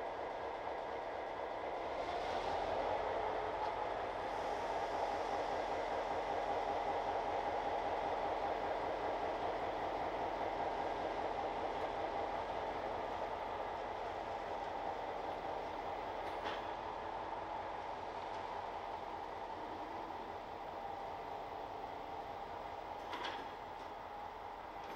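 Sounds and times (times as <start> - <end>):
freight train running: 0.0 - 24.9.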